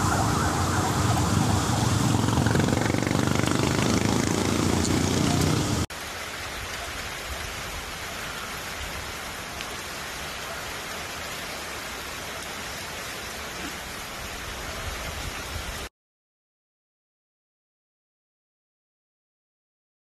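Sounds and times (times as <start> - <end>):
steady rain: 0.0 - 15.9.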